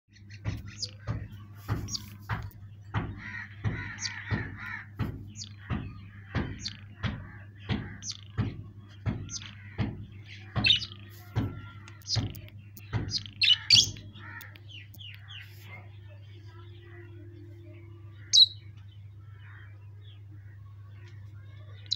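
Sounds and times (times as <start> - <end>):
small birds chirping: 0.1 - 21.9
steady low hum: 0.1 - 21.9
parakeet harsh calls: 3.2 - 8.3, 9.3 - 15.5.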